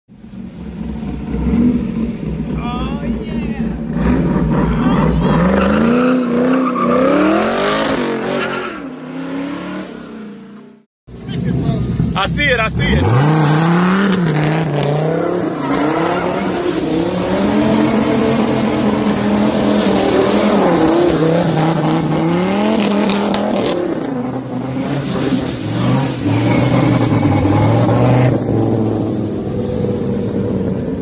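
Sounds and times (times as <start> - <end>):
tires squealing: 2.5 - 9.9, 12.9 - 22.2, 24.8 - 28.6
car engine revving hard: 3.8 - 10.0, 12.8 - 29.9.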